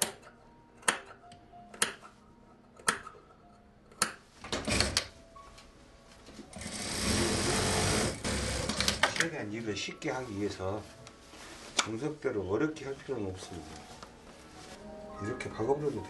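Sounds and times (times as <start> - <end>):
sewing machine running: 6.5 - 9.1
padded jacket rustling: 9.5 - 16.0.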